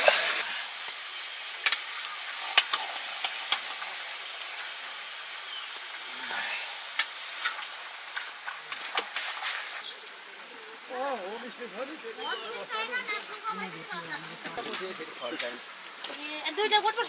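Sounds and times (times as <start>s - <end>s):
meat sizzling in a wok: 0.0s - 9.8s.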